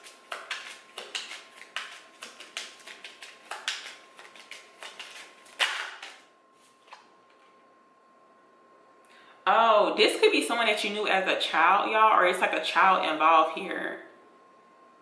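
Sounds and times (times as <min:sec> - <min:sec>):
cards being shuffled: 0:00.0 - 0:07.5.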